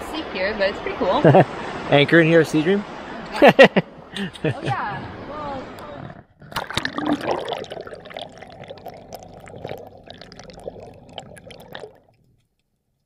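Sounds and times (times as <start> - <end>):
underwater rushing and bubbling: 6.0 - 12.3.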